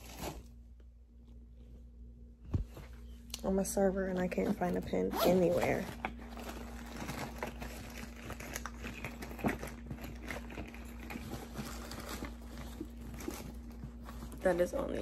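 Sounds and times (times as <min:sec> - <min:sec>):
hands rummaging small items: 0:04.2 - 0:15.0.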